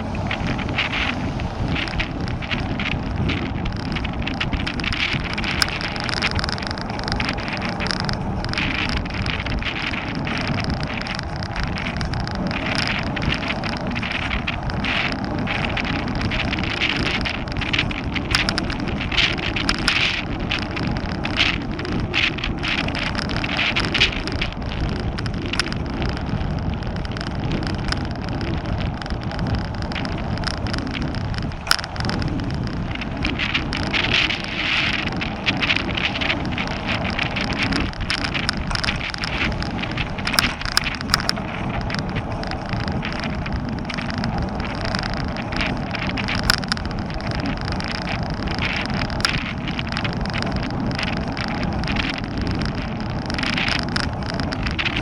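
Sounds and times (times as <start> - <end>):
bicycle tyres rumbling on asphalt: 0.0 - 55.0
small rattles and clicks: 0.0 - 55.0
wind buffeting microphone: 0.0 - 55.0.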